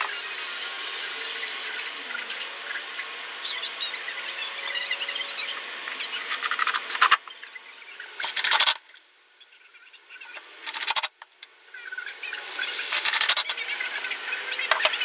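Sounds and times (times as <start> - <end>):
cordless drill driving screws: 10.6 - 11.1, 12.9 - 13.6.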